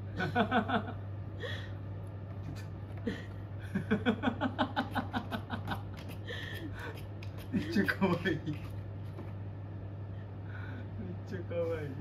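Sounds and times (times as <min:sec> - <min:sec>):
fan humming: 0:00.0 - 0:12.0
person laughing: 0:00.2 - 0:01.7, 0:03.0 - 0:08.7.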